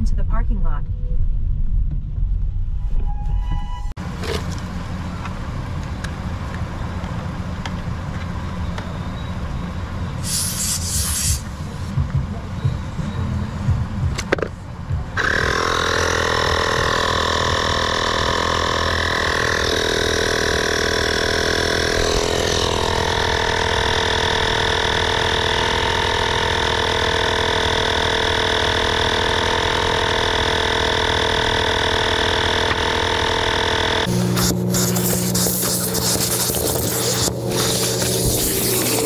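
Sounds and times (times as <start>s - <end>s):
small air compressor running: 10.2s - 11.9s, 15.2s - 39.0s.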